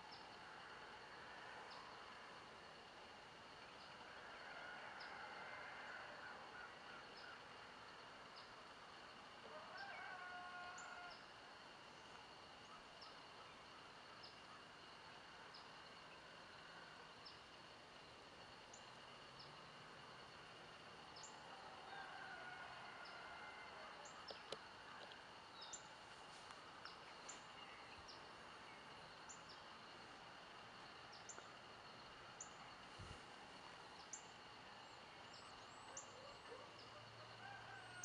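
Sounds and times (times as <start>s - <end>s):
high insect drone: 0.1s - 37.8s.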